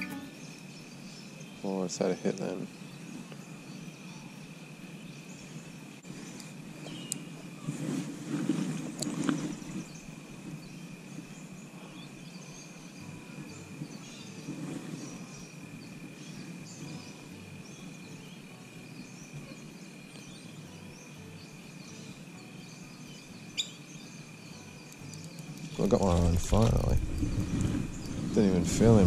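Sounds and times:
thin high tone: 0.0s - 0.5s
bird chirps: 11.4s - 29.0s.

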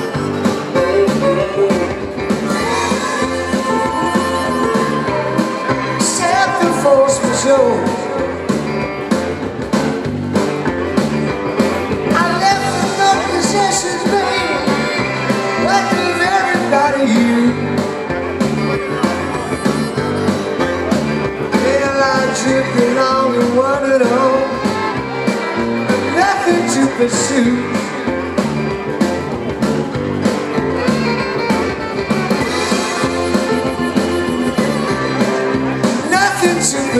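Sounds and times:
harmonica melody: 0.0s - 9.2s, 10.6s - 36.9s
acoustic guitar: 0.0s - 36.9s
drums: 0.0s - 36.9s
fiddle melody: 10.4s - 36.9s.

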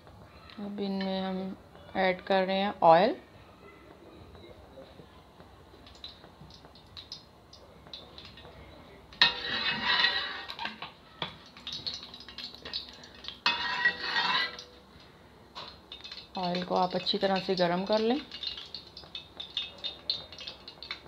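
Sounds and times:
metal spatula scraping pot: 9.2s - 10.9s, 11.6s - 14.8s.

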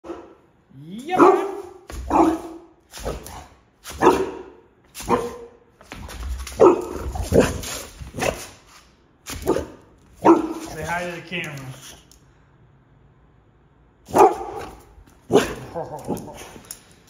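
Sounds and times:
dog barking: 0.0s - 0.4s, 1.1s - 5.6s, 6.6s - 8.4s, 9.4s - 10.8s, 14.1s - 16.5s.

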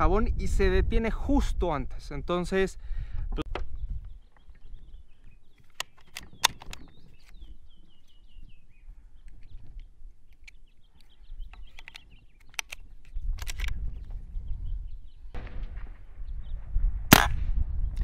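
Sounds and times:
sharp clicks: 5.6s - 7.4s, 9.2s - 14.1s.

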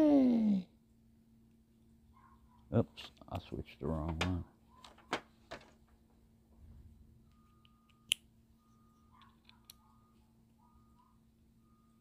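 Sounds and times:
faint reversing beeper: 7.2s - 9.2s, 9.8s - 12.0s.

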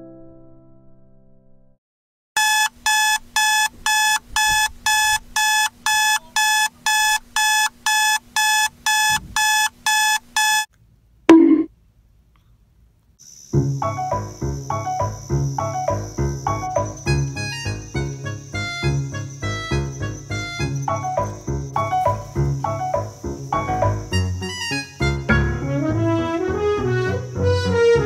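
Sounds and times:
alarm clock beeping: 2.4s - 10.7s
brief loud sound: 11.3s - 11.7s.

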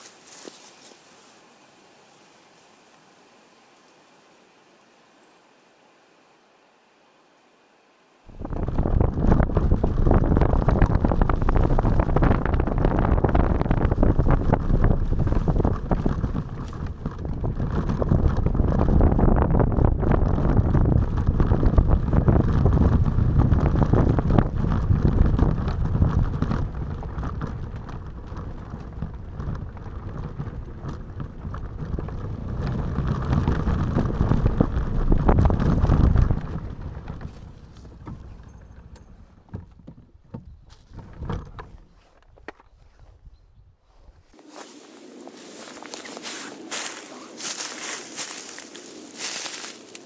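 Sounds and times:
tyres crunching on gravel: 0.0s - 1.4s, 8.3s - 39.8s, 44.3s - 50.0s
scooter engine: 8.3s - 40.2s
wind on microphone: 8.3s - 42.0s, 42.7s - 50.0s.

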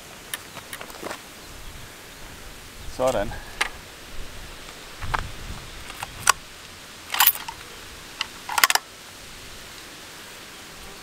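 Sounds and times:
rifle bolt clicking: 7.1s - 7.6s, 8.2s - 8.8s.

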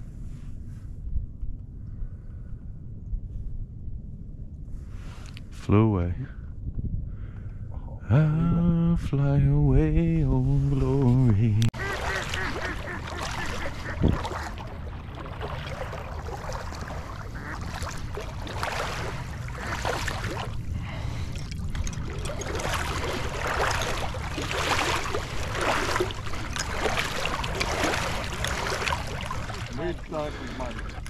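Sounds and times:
low rumble: 0.0s - 13.0s, 13.7s - 31.0s
water lapping around a boat: 10.9s - 31.0s.

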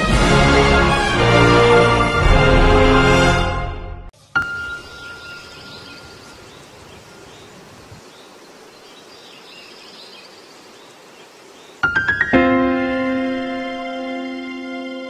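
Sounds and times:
faint bird chirps: 4.4s - 11.9s.

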